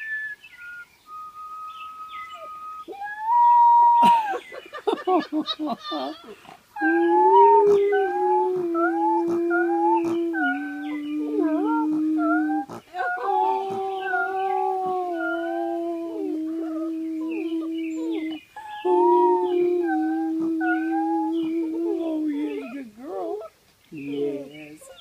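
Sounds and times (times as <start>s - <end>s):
man howling: 2.9s - 4.4s, 5.9s - 23.5s
puppy howling: 6.8s - 23.5s.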